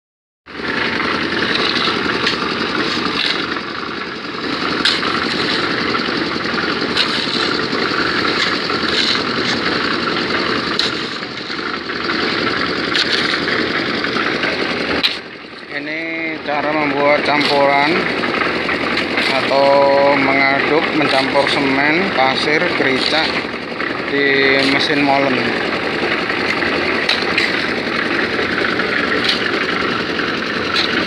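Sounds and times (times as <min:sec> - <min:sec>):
concrete mixer engine running: 0:00.5 - 0:31.0
shovels scraping sand: 0:00.8 - 0:03.6, 0:04.6 - 0:15.2, 0:26.0 - 0:31.0.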